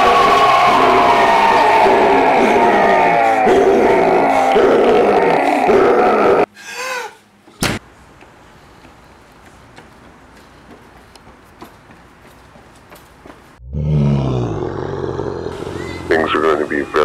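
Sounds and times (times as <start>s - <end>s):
voice rising and falling in pitch: 0.0s - 6.5s, 13.6s - 16.4s.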